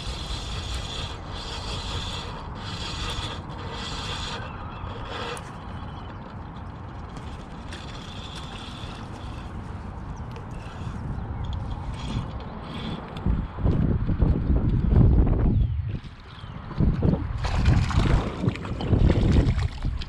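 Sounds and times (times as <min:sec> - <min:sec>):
fishing reel gears whirring: 0:00.0 - 0:06.1, 0:07.1 - 0:09.8, 0:10.5 - 0:13.0.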